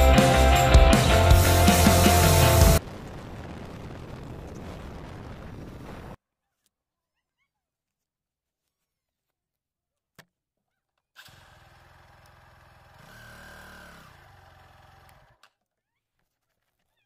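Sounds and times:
faint motorcycle engine: 11.2s - 15.5s.

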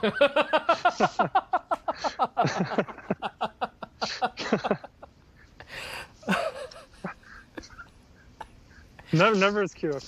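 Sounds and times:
man laughing hard: 0.0s - 5.1s.

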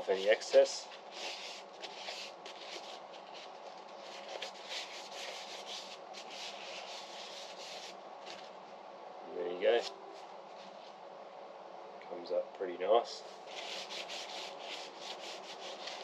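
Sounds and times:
paper towel rubbing on wood: 0.1s - 8.0s, 13.4s - 16.0s.

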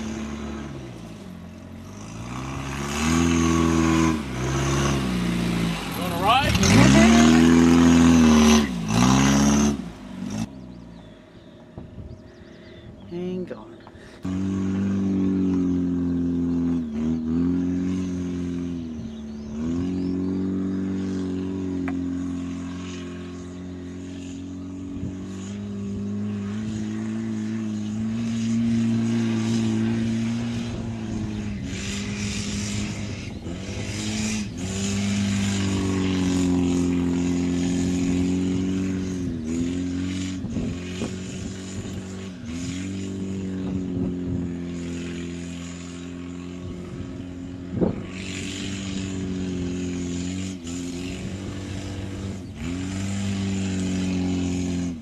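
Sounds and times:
car engine at high revs: 0.0s - 55.0s.

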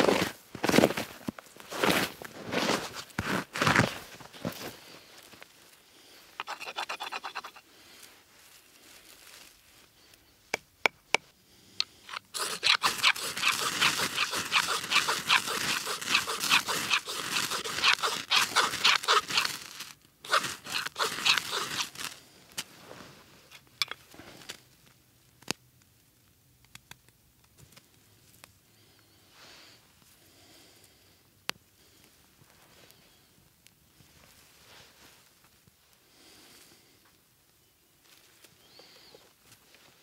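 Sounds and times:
dry grass crunching: 1.7s - 10.1s, 12.0s - 23.2s
ferro rod scraping: 6.4s - 7.6s, 11.8s - 22.2s.

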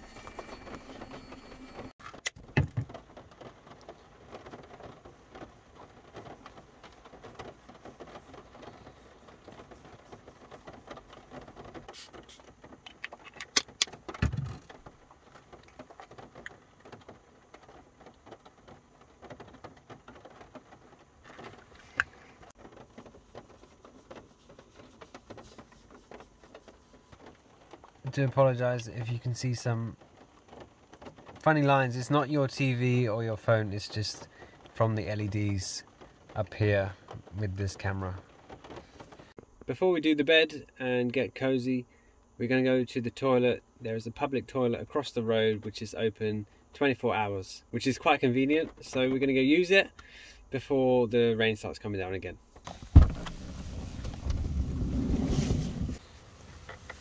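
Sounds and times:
rain pattering on roof: 0.0s - 40.5s, 44.2s - 50.3s, 51.1s - 57.0s
knocks and clicks of handling: 2.0s - 28.0s.

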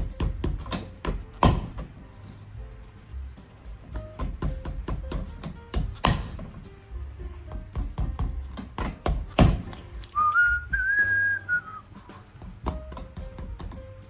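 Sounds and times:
hammer tapping shoe sole: 0.0s - 1.9s, 4.0s - 6.7s, 7.4s - 11.0s, 12.4s - 14.0s
high whistled note: 10.2s - 11.9s.

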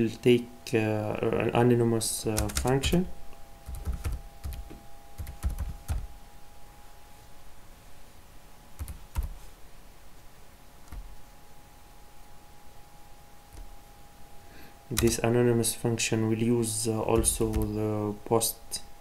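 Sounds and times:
faint steady hum: 0.0s - 19.0s
keyboard typing: 2.4s - 3.0s, 3.6s - 6.1s, 8.8s - 9.4s, 10.8s - 11.1s, 15.0s - 15.2s, 17.1s - 17.8s.

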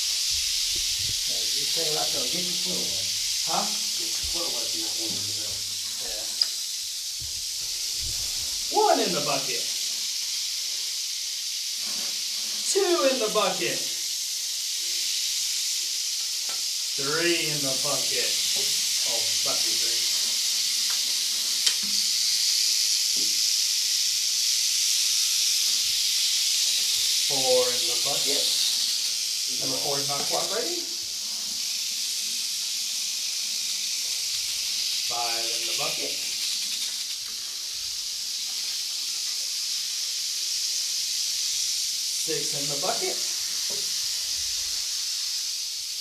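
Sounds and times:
rattlesnakes rattling: 0.0s - 46.0s
sharp click: 6.4s - 6.6s.

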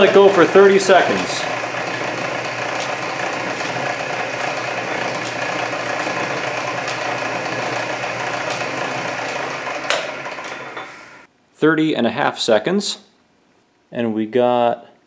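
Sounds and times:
drill press humming: 0.0s - 11.3s.

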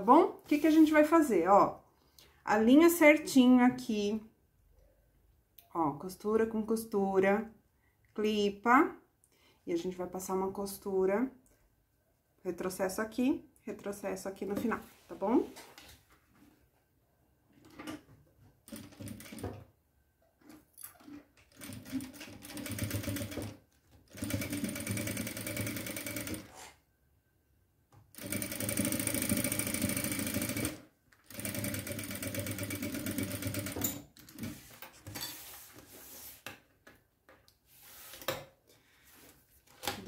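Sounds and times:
sewing machine stitching: 20.4s - 26.6s, 28.2s - 34.7s.

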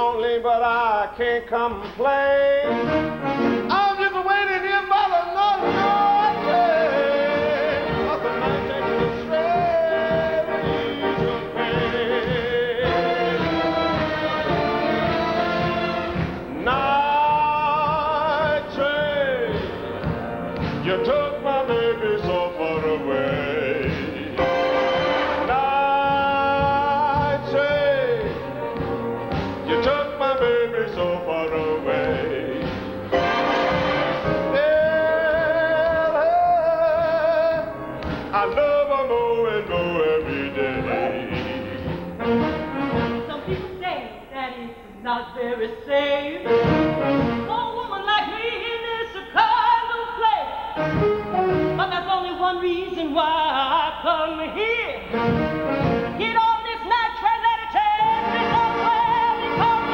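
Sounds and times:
orchestra music: 1.6s - 44.3s, 46.0s - 59.9s
country band playing: 1.9s - 43.8s, 50.8s - 52.1s, 55.1s - 56.5s, 57.8s - 59.9s
operatic singing high voice: 20.7s - 28.6s, 29.6s - 42.2s, 56.1s - 59.9s.

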